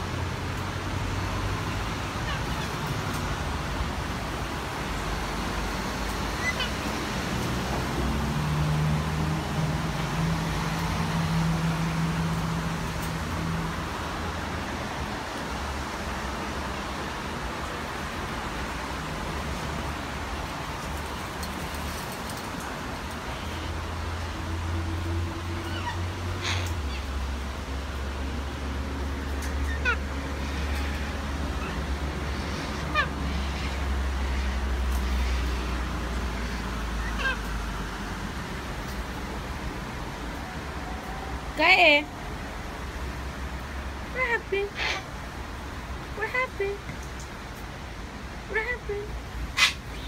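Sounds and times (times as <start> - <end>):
low traffic rumble: 0.0 - 50.0
outdoor background noise: 0.0 - 50.0
cockatoo call: 6.4 - 6.8, 25.6 - 27.1, 29.6 - 35.4, 36.4 - 37.5, 44.7 - 45.1, 49.6 - 50.0.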